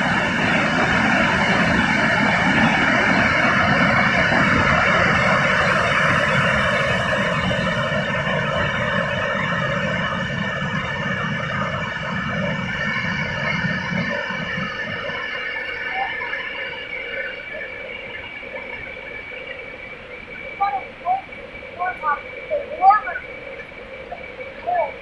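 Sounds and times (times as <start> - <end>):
waterfall rushing: 12.9 - 25.0.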